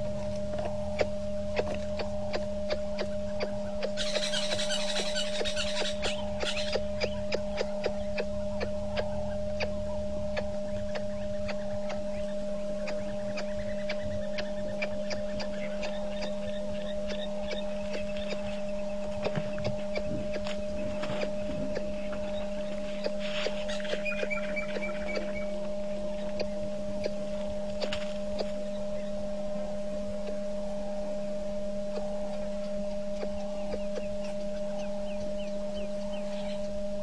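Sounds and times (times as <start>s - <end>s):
steady two-tone low hum: 0.0s - 37.0s
high bird chirps: 0.9s - 29.2s.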